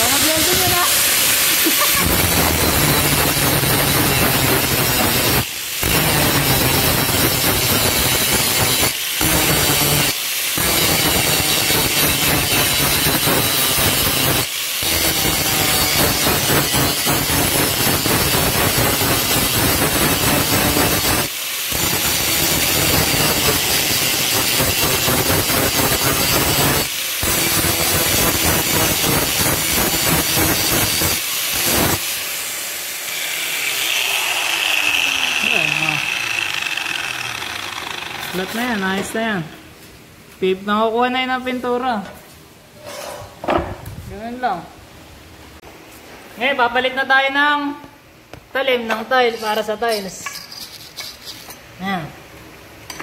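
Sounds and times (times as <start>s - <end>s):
angle grinder grinding metal: 0.0s - 39.2s
grinder disc spinning down: 33.3s - 39.1s.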